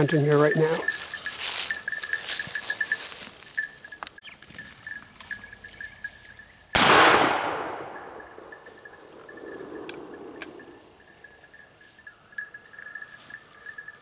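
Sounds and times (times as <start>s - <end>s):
shotgun shot: 6.8s - 8.2s
rolling echo: 6.8s - 10.8s.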